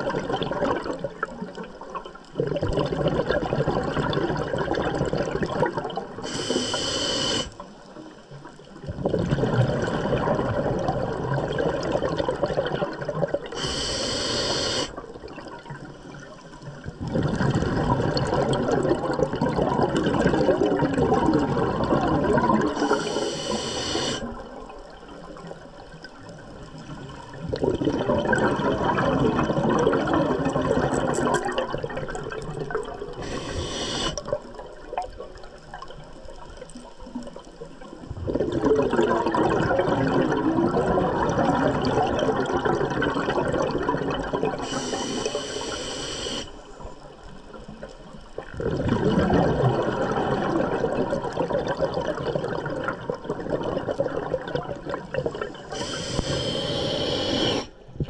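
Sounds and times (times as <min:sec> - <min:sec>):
exhaled bubbles rushing: 0:00.0 - 0:06.2, 0:08.6 - 0:13.7, 0:14.9 - 0:23.6, 0:24.2 - 0:45.7, 0:46.9 - 0:57.7
regulator inhale hiss: 0:06.2 - 0:07.6, 0:13.5 - 0:15.0, 0:22.7 - 0:24.3, 0:33.2 - 0:34.3, 0:44.6 - 0:46.8, 0:55.6 - 0:57.8.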